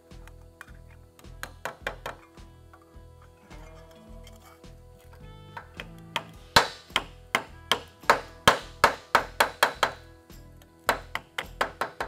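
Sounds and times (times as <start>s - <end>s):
hammer striking sheet steel: 5.9s - 10.0s.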